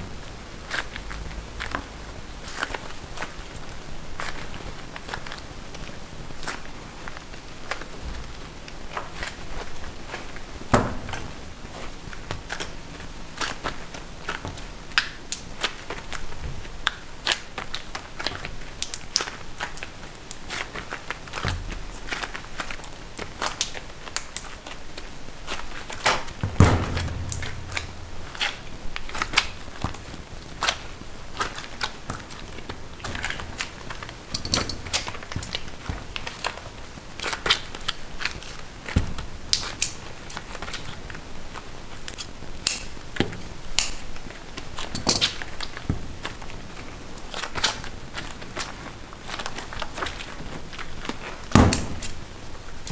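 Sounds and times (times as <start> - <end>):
heavy thump: 10.7 - 11.5, 26.4 - 30.1.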